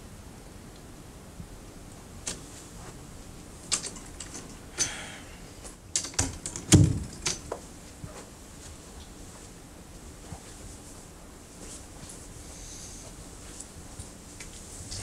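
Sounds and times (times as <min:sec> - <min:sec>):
door clicks and knocks: 0:06.0 - 0:07.6.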